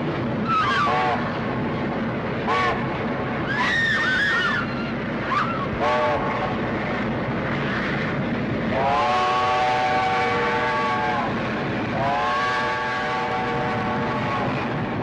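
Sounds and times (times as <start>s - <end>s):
moving train rumble: 0.0s - 15.0s
steam locomotive whistle: 0.5s - 1.3s, 2.5s - 2.8s, 5.3s - 6.6s, 8.7s - 11.4s, 12.0s - 14.6s.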